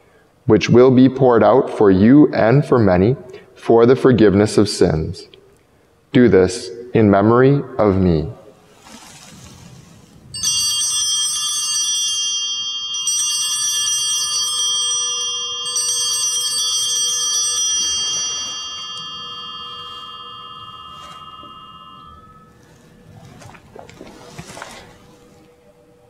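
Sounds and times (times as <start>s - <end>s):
altar bells jangling: 10.4s - 25.5s.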